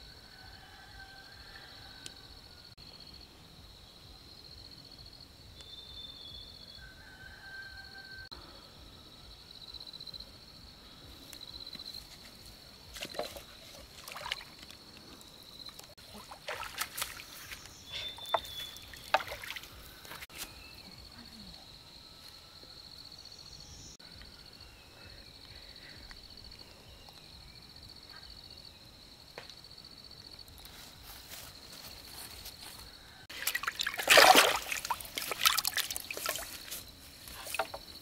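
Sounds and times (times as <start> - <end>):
insects chirring: 0.0 - 38.0
water splashing: 13.0 - 14.8, 16.0 - 17.4, 18.7 - 19.7, 33.3 - 36.7.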